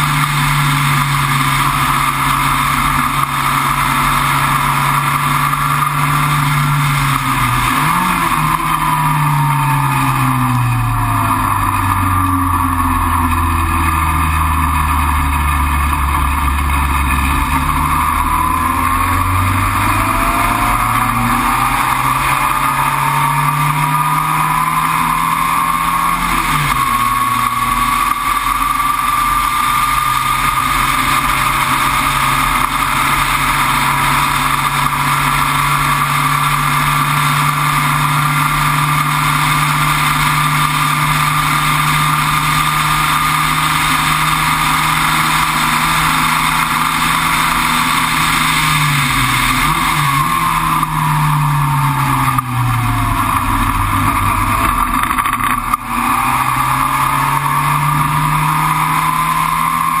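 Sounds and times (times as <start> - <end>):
race car engine revving: 0.0 - 60.0.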